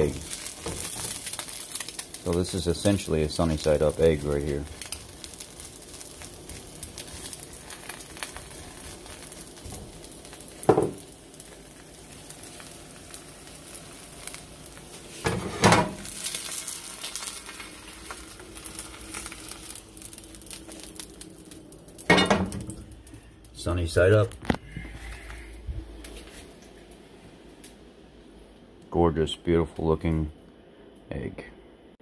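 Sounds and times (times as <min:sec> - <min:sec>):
egg sizzling in pan: 0:00.0 - 0:23.5.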